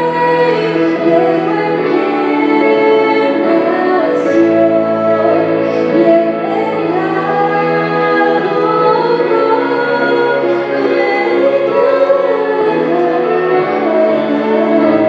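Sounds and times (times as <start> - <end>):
instrumental accompaniment: 0.0 - 15.0
woman singing worship song: 0.0 - 15.0.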